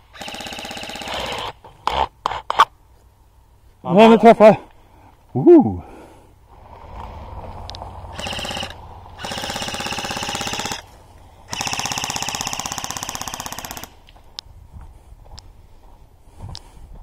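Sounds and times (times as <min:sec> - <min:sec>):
airsoft guns firing automatic bursts: 0:00.1 - 0:01.5, 0:08.1 - 0:10.9, 0:11.5 - 0:14.0.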